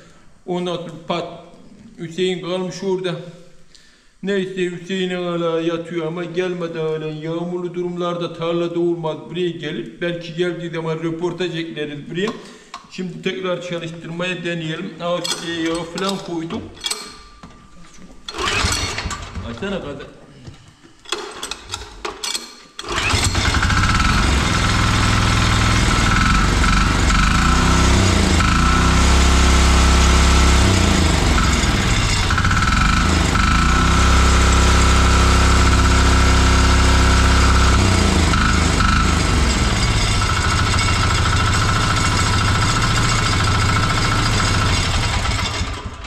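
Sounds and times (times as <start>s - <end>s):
diesel engine running: 22.9s - 46.0s.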